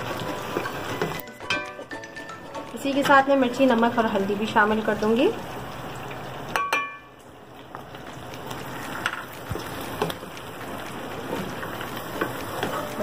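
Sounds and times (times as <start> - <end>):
stirring knocks: 0.0 - 4.1, 9.0 - 13.0
hot oil sizzling: 0.0 - 13.0.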